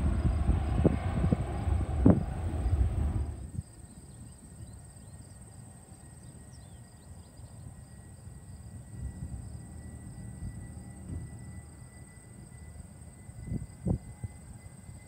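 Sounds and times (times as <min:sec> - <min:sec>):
jet engine noise: 0:00.0 - 0:03.8
high insect drone: 0:00.0 - 0:15.0.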